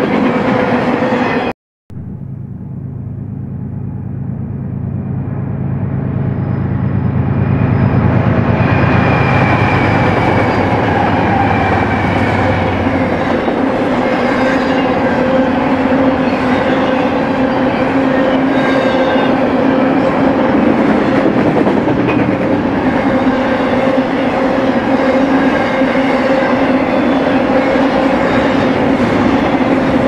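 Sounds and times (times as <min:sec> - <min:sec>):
train wheels rumbling on rail: 0:00.0 - 0:01.5, 0:05.2 - 0:30.0
locomotive engine drone: 0:00.0 - 0:30.0.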